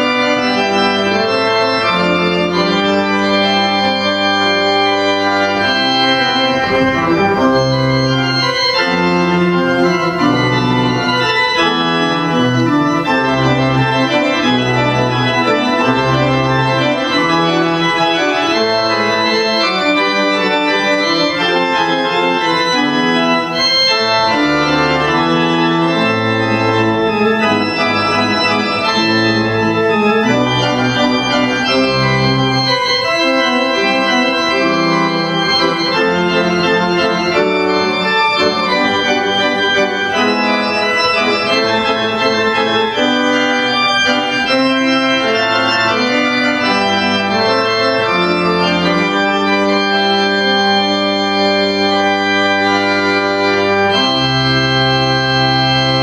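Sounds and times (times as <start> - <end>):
church organ chords: 0.0 - 56.0.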